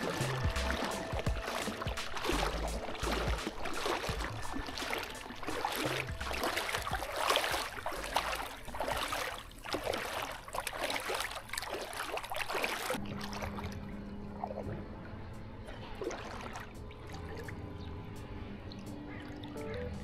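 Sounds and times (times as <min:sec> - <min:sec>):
soft music with held notes: 0:00.0 - 0:07.0, 0:13.4 - 0:20.0
sea water lapping and splashing: 0:00.0 - 0:20.0.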